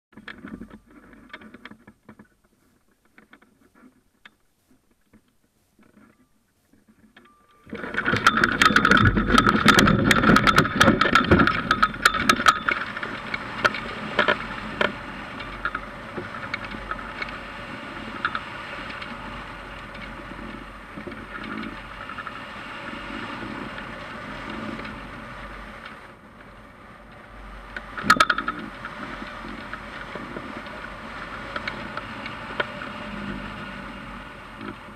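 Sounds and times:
rapid clicking and rattling: 6.8 - 34.9
wind rushing over microphone: 7.7 - 34.9.

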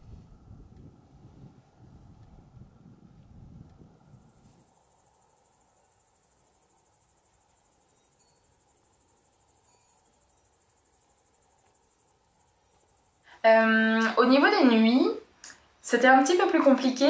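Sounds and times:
crickets chirping: 3.7 - 17.0.

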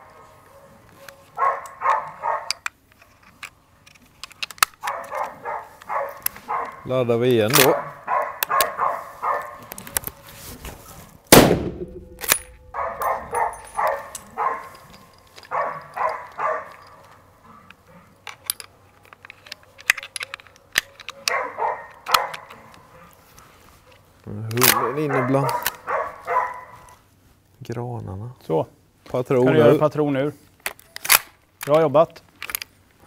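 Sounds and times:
dog barking: 0.0 - 2.6, 4.8 - 6.9, 7.6 - 10.2, 12.7 - 14.8, 15.5 - 16.8, 21.1 - 23.2, 24.6 - 27.0
loud rifle shot: 11.3 - 12.8.

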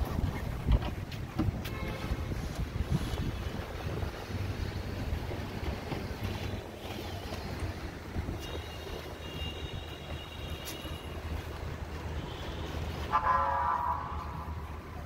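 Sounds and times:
wind on microphone: 0.0 - 13.2
low city rumble: 0.0 - 15.0
vehicle horn honking: 1.6 - 2.3, 8.4 - 11.2, 12.2 - 14.4.

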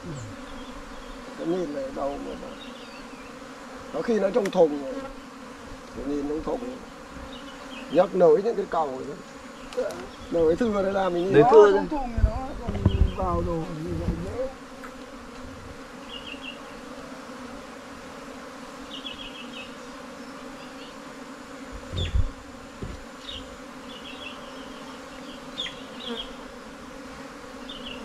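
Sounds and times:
bees humming drone: 0.0 - 28.0
thump: 21.7 - 23.0.

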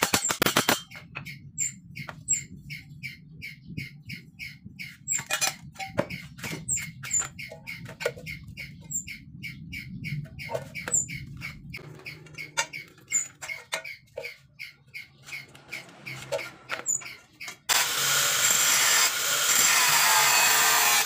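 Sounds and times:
bird chirping: 0.9 - 17.7.

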